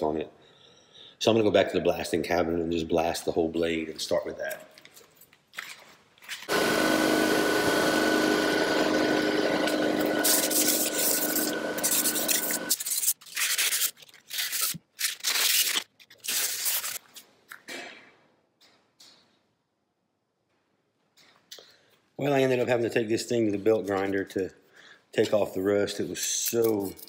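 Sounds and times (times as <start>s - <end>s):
wire brush scrubbing metal: 9.2s - 13.2s.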